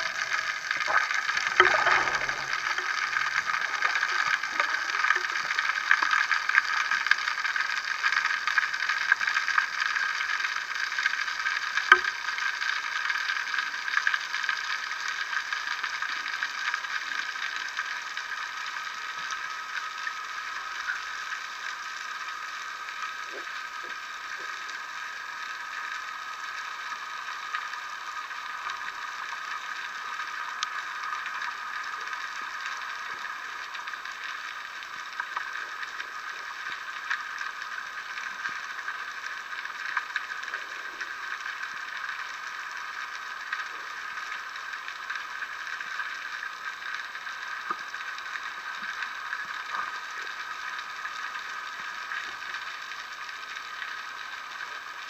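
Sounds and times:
underwater hiss: 0.0 - 9.1
faint clicks and crackles: 0.0 - 55.0.

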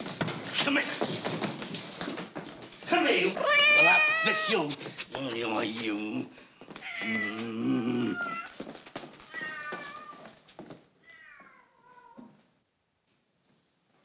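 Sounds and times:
cat meowing and yowling: 3.4 - 4.6, 6.8 - 8.6, 9.2 - 10.4, 11.0 - 12.3.

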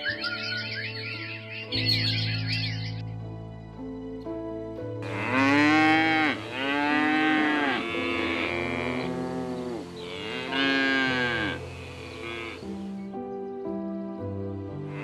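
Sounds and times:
soft background music: 0.0 - 15.0
cow mooing: 5.0 - 12.7.

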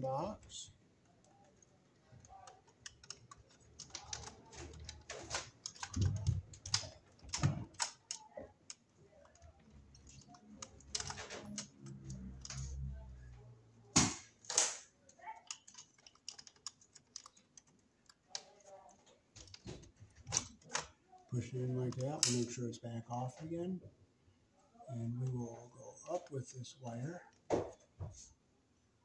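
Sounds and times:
circuit breaker clicks and rattles: 19.3 - 21.0.

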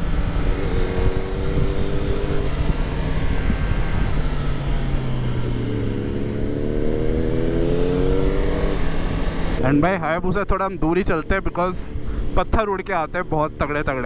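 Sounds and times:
wind rushing: 0.0 - 9.6
motorcycle engine running: 0.0 - 14.0.

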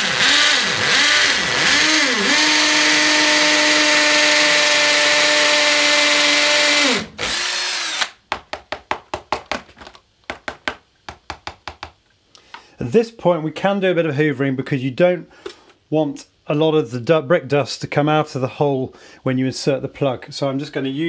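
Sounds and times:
hammer drill boring into brick: 0.0 - 8.2.

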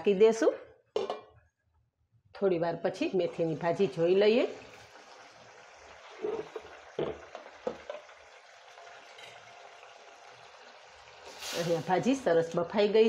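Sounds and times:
gravy bubbling in pan: 3.3 - 12.2.

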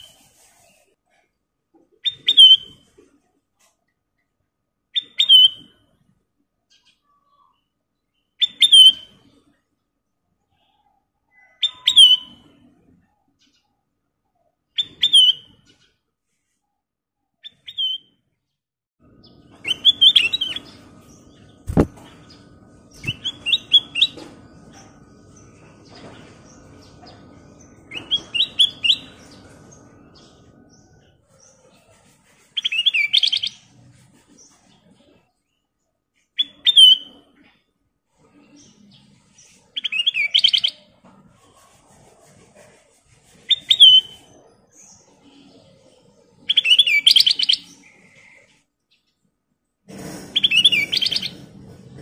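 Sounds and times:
bird singing bright phrases: 5.0 - 5.8, 6.7 - 9.2, 10.5 - 12.7, 17.4 - 18.4, 19.1 - 31.7.

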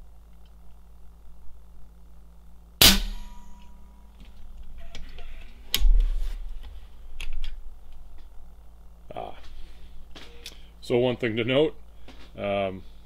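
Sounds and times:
air rifle shot with metallic ring: 2.8 - 3.8.

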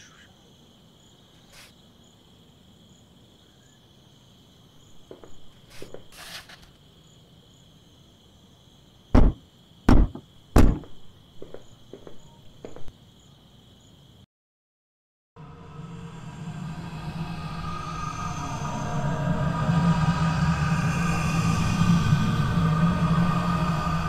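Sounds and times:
crickets chirping: 0.0 - 14.3, 15.4 - 24.0
heavy thuds: 9.2 - 12.9.

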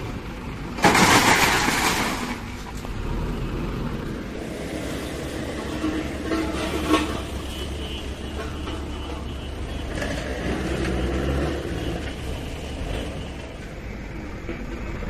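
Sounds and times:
diesel engines running: 0.0 - 15.0
engine revving: 9.8 - 12.1.

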